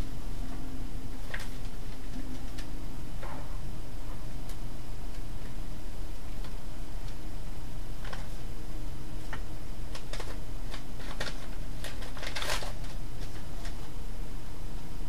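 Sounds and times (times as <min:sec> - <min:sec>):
steady low hum: 0:00.0 - 0:15.0
papers rustling: 0:00.4 - 0:03.5, 0:08.0 - 0:08.4, 0:09.2 - 0:14.0.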